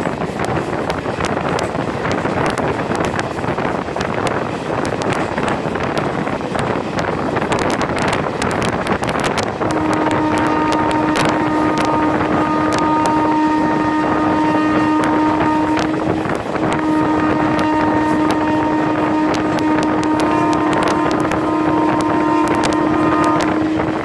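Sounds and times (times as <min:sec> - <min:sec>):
train wheels clattering: 0:00.0 - 0:24.0
wind rushing on microphone: 0:00.0 - 0:24.0
train horn blast: 0:07.2 - 0:24.0.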